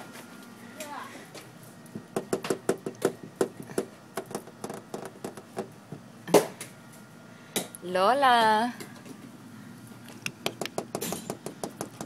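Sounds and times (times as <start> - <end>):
fingers tapping on window: 2.2 - 5.7, 10.2 - 12.0
knock on window: 2.2 - 5.7.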